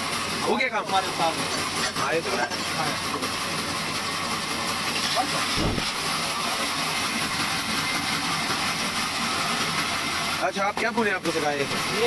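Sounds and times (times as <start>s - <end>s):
band saw cutting cardboard: 5.2s - 6.1s
low thump: 5.6s - 6.0s.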